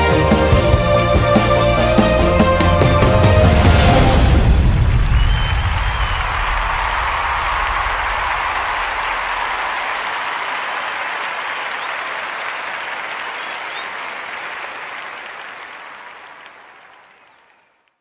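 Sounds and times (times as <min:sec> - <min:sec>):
low bass of music: 0:00.0 - 0:04.8
large crowd applauding: 0:00.0 - 0:18.0.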